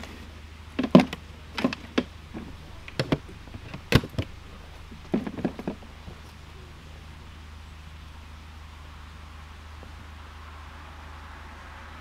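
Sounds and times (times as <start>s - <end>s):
camping gear knocks and scuffs: 0.0s - 4.3s, 5.0s - 6.2s
low steady hum: 0.0s - 12.0s.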